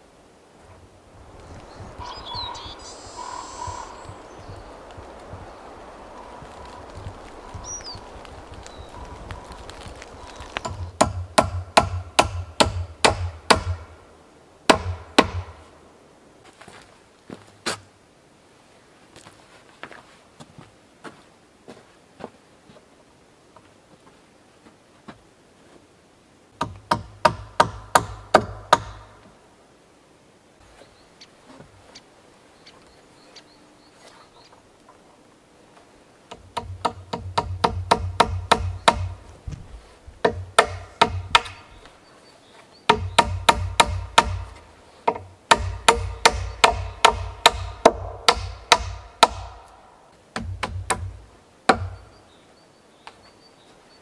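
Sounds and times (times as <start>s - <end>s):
hand tool striking wood: 10.6s - 13.9s, 14.7s - 15.6s, 36.3s - 39.2s, 40.2s - 41.7s, 42.9s - 49.8s, 50.4s - 52.0s.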